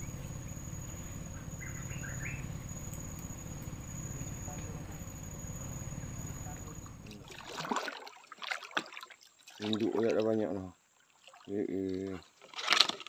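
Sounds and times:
bird chirps: 0:00.0 - 0:07.1
low rumble: 0:00.0 - 0:07.2
insects droning: 0:00.0 - 0:07.9.

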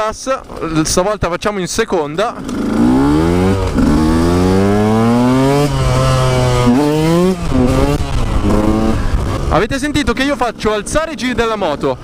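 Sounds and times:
dirt bike engine revving: 0:02.3 - 0:11.0.

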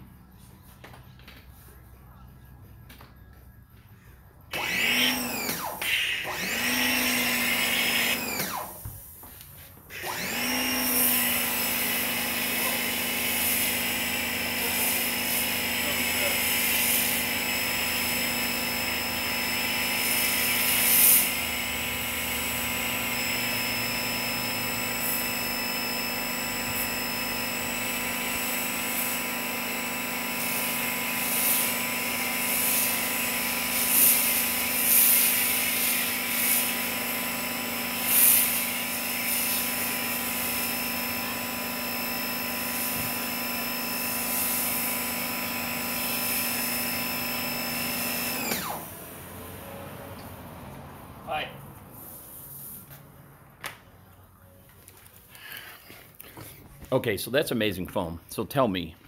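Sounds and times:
pressure washer pump humming: 0:04.5 - 0:50.9
foam cannon spray hissing: 0:11.3 - 0:18.3, 0:20.0 - 0:22.7, 0:30.3 - 0:41.2, 0:42.6 - 0:46.9.

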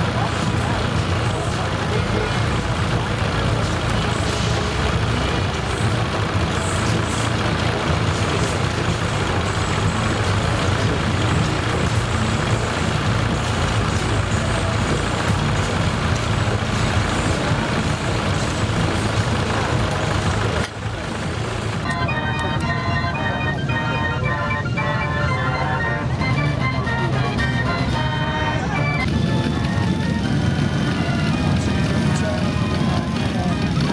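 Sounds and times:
fairground organ playing: 0:00.0 - 0:33.9
log splitter machinery humming: 0:00.0 - 0:33.9.

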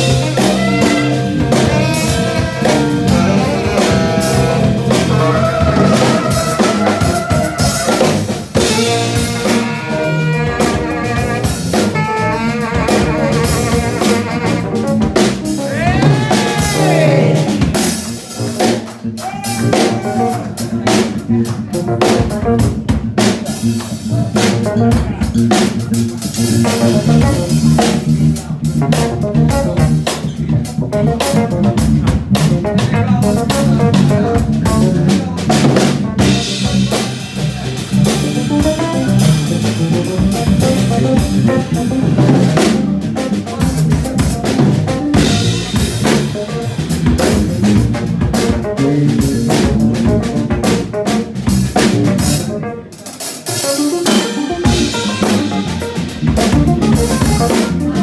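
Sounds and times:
drum kit groove: 0:00.0 - 0:58.0
electric keyboard chords: 0:00.0 - 0:58.0
low bass notes: 0:00.0 - 0:58.0.

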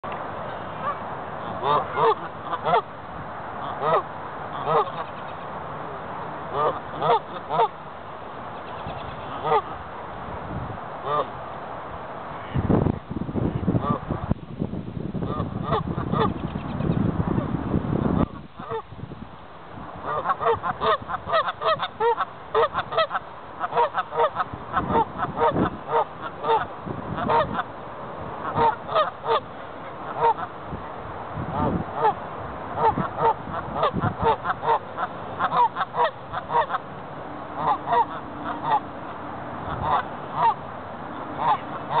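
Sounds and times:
goose honking: 0:00.5 - 0:02.9, 0:03.6 - 0:05.5, 0:06.5 - 0:07.8, 0:08.6 - 0:09.8, 0:11.0 - 0:11.3, 0:15.2 - 0:16.9, 0:18.2 - 0:18.8, 0:20.0 - 0:27.7, 0:28.4 - 0:30.5, 0:31.5 - 0:32.2, 0:32.8 - 0:36.8, 0:37.6 - 0:42.0.

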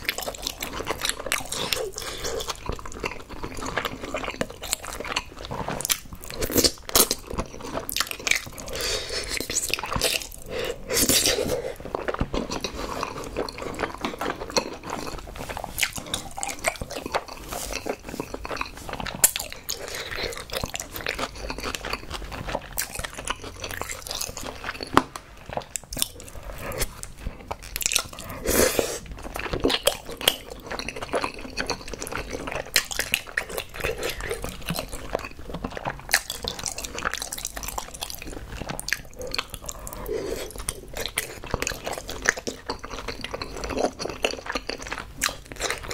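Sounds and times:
wet chewing and smacking: 0:00.0 - 0:45.9.

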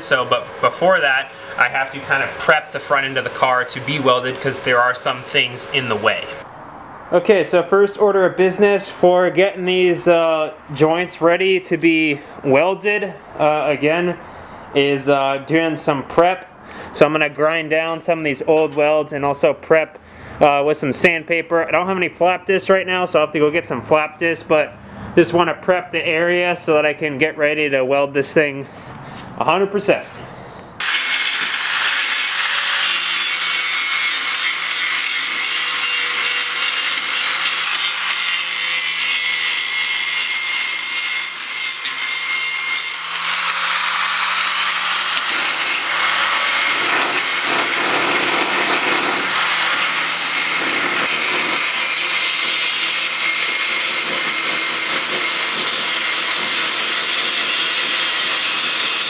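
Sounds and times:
angle grinder grinding steel: 0:00.0 - 0:06.4, 0:30.8 - 0:59.0.

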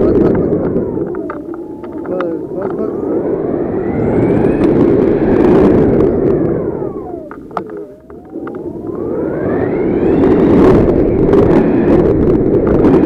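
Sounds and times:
wind buffeting microphone: 0:00.0 - 0:13.0
faint gliding whistle: 0:08.0 - 0:12.0.

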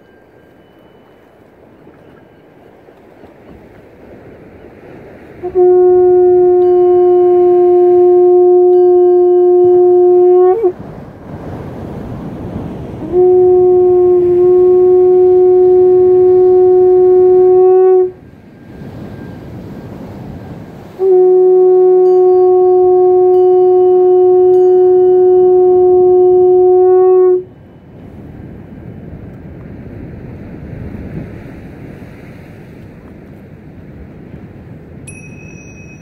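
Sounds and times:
waves: 0:00.0 - 0:36.0
wind on microphone: 0:03.2 - 0:36.0
horn blown by mouth: 0:05.4 - 0:10.8, 0:13.0 - 0:18.2, 0:20.8 - 0:27.5.

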